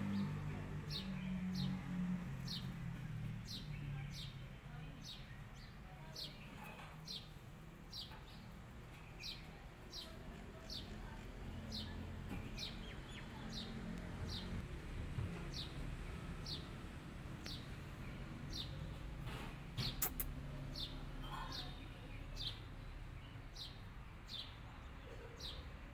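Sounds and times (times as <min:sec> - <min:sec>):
sharp clicks: 0:19.8 - 0:20.3.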